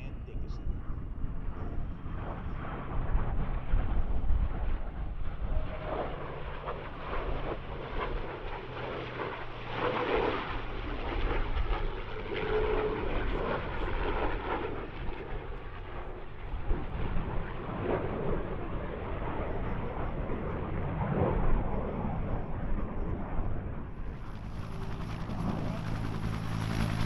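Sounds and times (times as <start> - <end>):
aircraft engine roar: 0.0 - 27.0.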